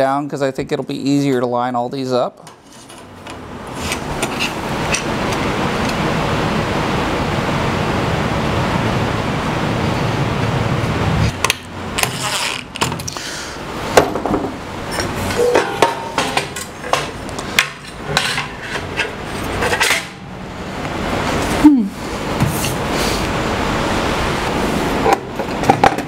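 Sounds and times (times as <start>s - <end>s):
metal parts clanking: 14.2s - 20.2s.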